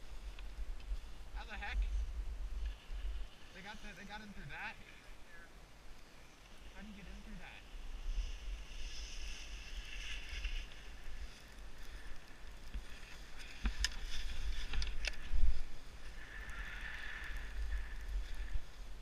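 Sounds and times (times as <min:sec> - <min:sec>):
wind rumble on microphone: 0:00.0 - 0:04.0
skis scraping over snow: 0:00.0 - 0:05.5, 0:06.5 - 0:19.0.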